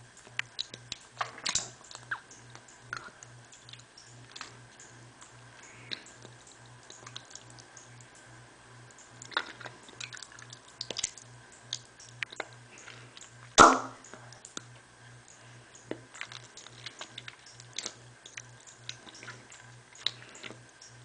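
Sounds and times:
lip smacks: 0.2 - 4.6, 5.2 - 8.1, 9.2 - 14.7.

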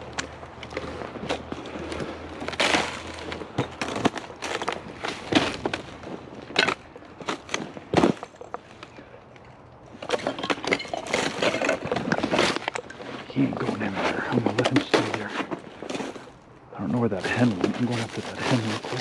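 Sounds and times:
footsteps crunching and rustling: 0.0 - 9.0, 11.0 - 19.0.

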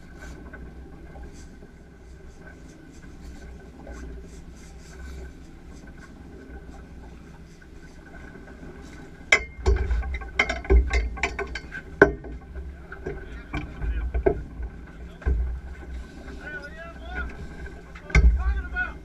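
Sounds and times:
knocks and thuds on boat deck: 9.3 - 16.4, 17.1 - 19.0.

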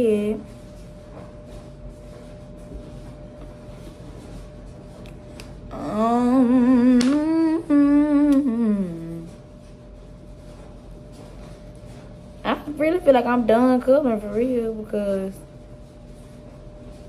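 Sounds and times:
faint steady hum: 0.0 - 17.0
woman humming: 5.7 - 9.4.

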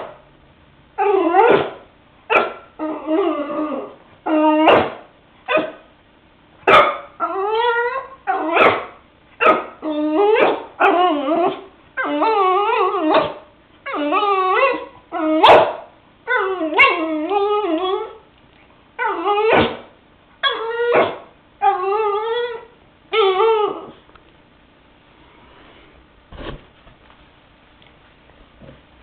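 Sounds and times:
dog whining: 1.0 - 5.8, 6.7 - 18.3, 19.0 - 24.1.

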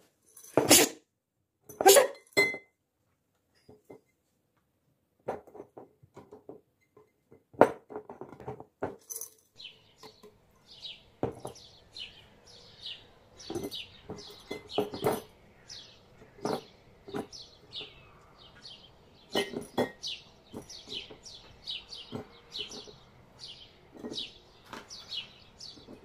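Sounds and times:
bird chirping: 9.5 - 26.0
cucumbers clunking against glass jars: 13.4 - 18.2, 19.2 - 23.1.

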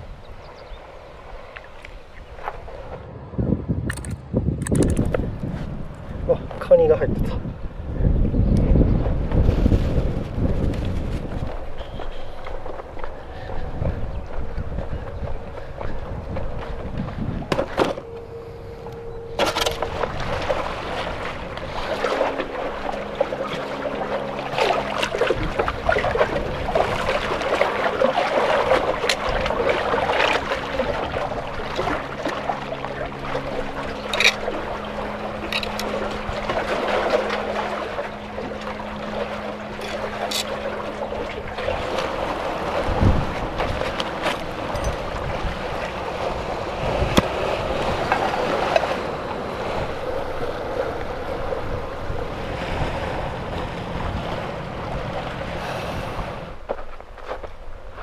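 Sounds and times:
wind on microphone: 0.0 - 56.8
water sloshing among concrete blocks: 19.3 - 51.2.

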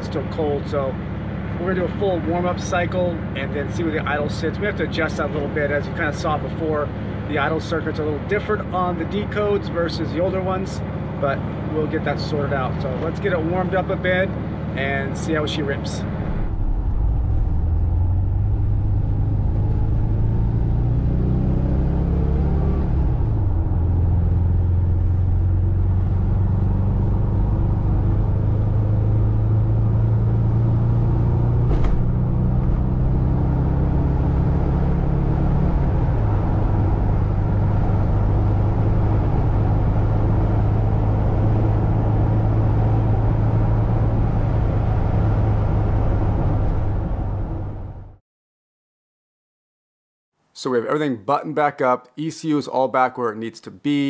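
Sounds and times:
van engine pulling: 0.0 - 48.1
road noise: 0.0 - 48.2.

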